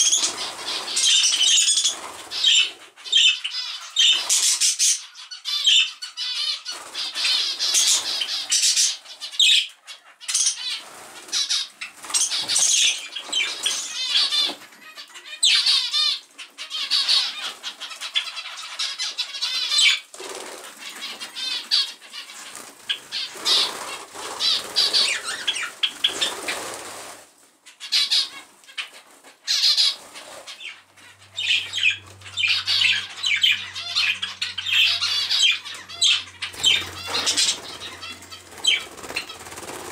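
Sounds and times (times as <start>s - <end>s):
birds chattering and chirping: 0.0s - 39.9s
wing flutters: 10.6s - 14.6s, 20.1s - 27.3s, 28.9s - 39.9s.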